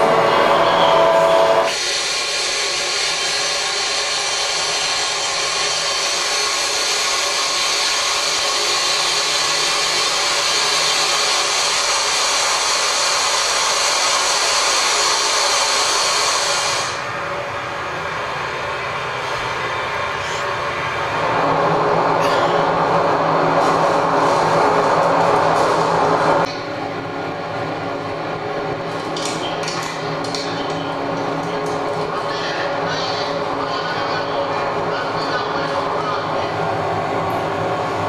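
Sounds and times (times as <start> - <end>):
loud hiss of air and machinery: 1.2 - 17.1.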